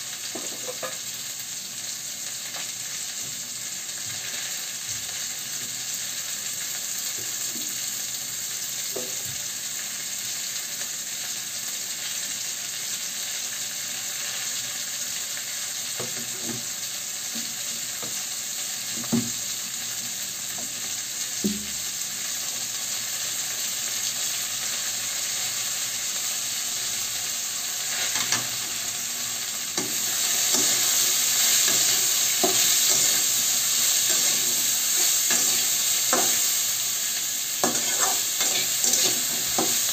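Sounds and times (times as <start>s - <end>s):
vegetables sizzling in oil: 0.0s - 39.9s
pan being stirred: 29.8s - 36.8s, 37.6s - 39.9s.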